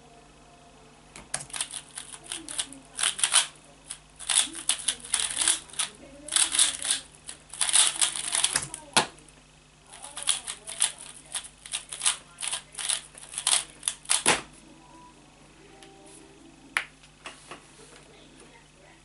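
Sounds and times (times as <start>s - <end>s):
speed cube clicking turns: 1.4s - 8.8s, 10.0s - 14.3s.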